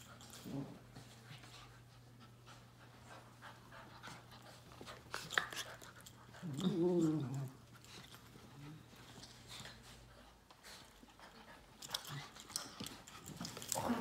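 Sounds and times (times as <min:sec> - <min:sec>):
dogs scuffling and panting: 0:00.0 - 0:14.0
dog play growl: 0:00.1 - 0:01.2, 0:04.4 - 0:09.4, 0:11.2 - 0:14.0.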